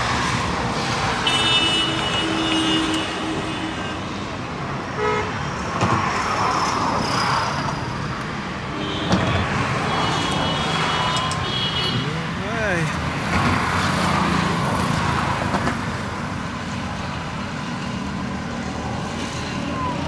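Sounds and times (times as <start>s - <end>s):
road traffic passing: 0.0s - 20.0s
vehicle horns tooting: 1.2s - 4.1s, 5.0s - 5.4s, 8.7s - 12.4s.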